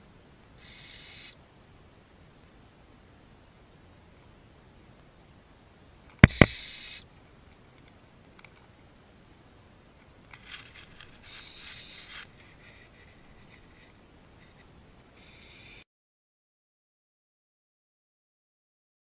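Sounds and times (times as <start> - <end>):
owl chicks hissing: 0.6 - 1.4, 6.2 - 7.1, 11.1 - 12.8, 15.2 - 15.8
sharp knocks: 6.2 - 6.6.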